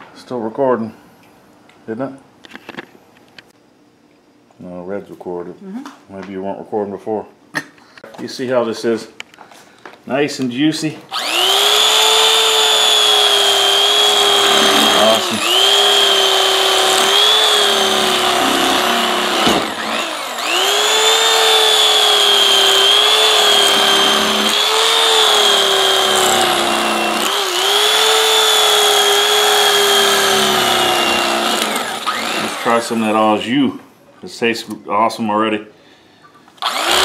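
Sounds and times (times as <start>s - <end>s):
electric carving knife whine: 11.1s - 33.2s, 36.6s - 37.0s.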